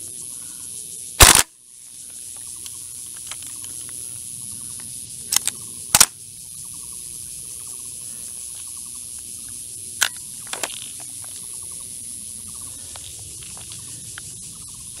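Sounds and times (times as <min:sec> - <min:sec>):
insect chirps: 0:00.0 - 0:15.0
airsoft rifle double crack: 0:01.2 - 0:01.5, 0:05.3 - 0:06.2
magazine clicks: 0:01.2 - 0:01.5, 0:05.3 - 0:06.2.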